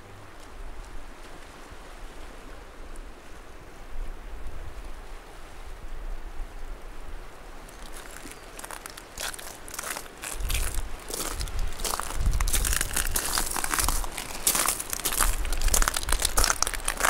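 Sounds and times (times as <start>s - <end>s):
small waves washing: 6.6s - 17.0s.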